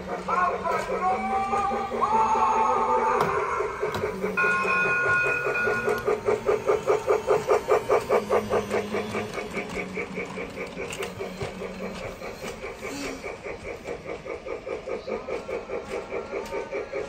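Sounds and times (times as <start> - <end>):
toy train clattering on track: 0.0 - 2.1, 3.1 - 17.0
steady high tone: 0.4 - 9.6.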